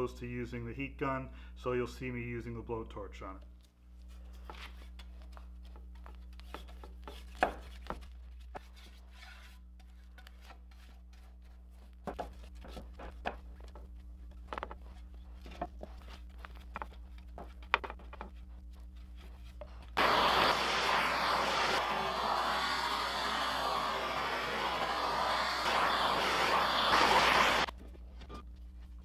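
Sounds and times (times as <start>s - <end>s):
steady low hum: 18.2s - 27.8s.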